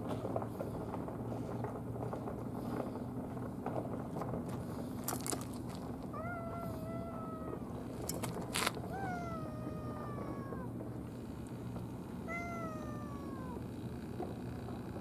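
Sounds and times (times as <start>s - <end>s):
steady low hum: 0.0s - 15.0s
cat meowing: 6.1s - 10.8s, 12.2s - 13.7s.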